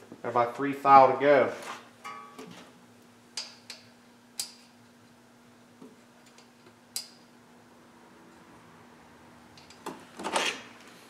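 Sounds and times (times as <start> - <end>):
metal tools clicking and tapping: 3.4 - 4.7, 6.2 - 7.2, 9.5 - 9.9.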